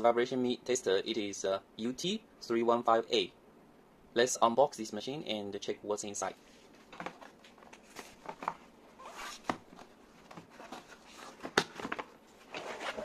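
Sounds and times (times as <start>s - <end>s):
cardboard flaps scraping and rustling: 7.0s - 13.0s.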